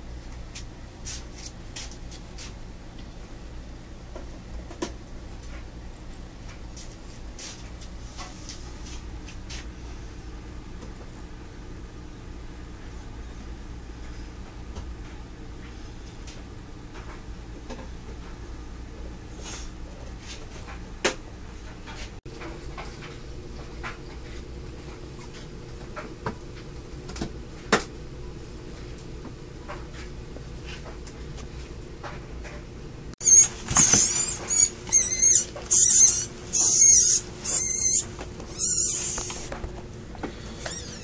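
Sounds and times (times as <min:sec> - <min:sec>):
rodent squealing: 0:33.2 - 0:39.5, 0:40.4 - 0:41.0.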